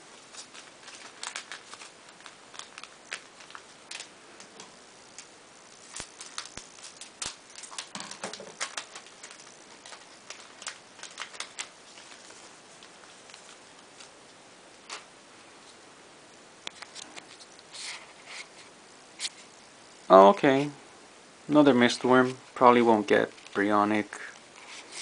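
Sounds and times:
cards being handled: 0.2 - 4.6, 5.2 - 14.2
foil wrapper crinkling: 0.2 - 14.2.

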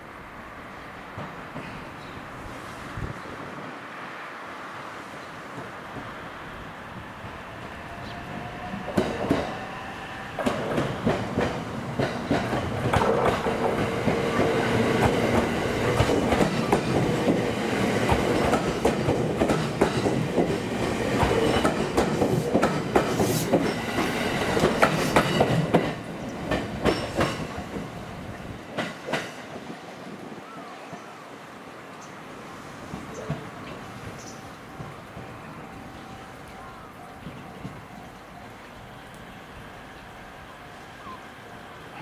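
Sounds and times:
train wheels clattering over rail joints: 10.4 - 28.0.

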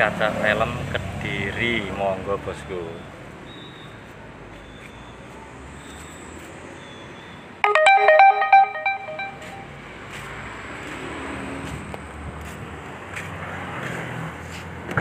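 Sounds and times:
electronic ringtone melody: 7.6 - 9.7.

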